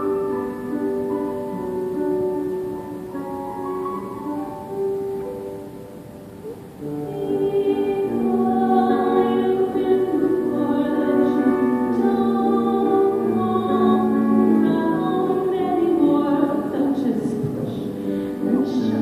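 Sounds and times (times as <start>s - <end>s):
grand piano: 0.0s - 19.0s
person singing: 6.8s - 19.0s.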